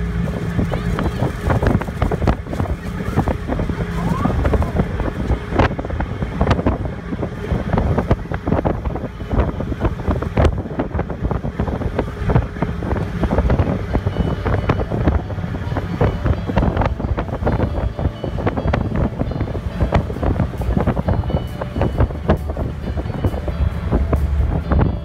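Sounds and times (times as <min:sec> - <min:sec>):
boat low rumble: 0:00.0 - 0:25.0
wind buffeting microphone: 0:00.0 - 0:25.0.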